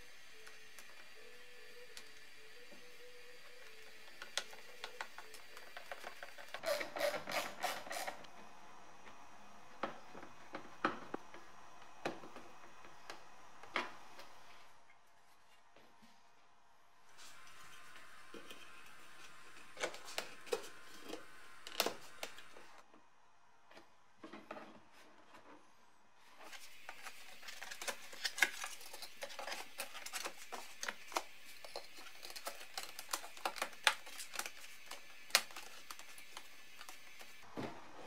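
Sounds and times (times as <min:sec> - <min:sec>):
plastic parts clicking and tapping: 0:03.6 - 0:08.3, 0:26.8 - 0:37.3.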